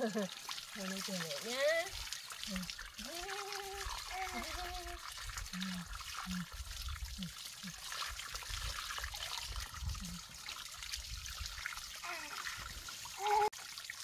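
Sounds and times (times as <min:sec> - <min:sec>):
water trickling into basin: 0:00.0 - 0:14.0
high baby voice: 0:03.0 - 0:05.0, 0:12.0 - 0:13.6.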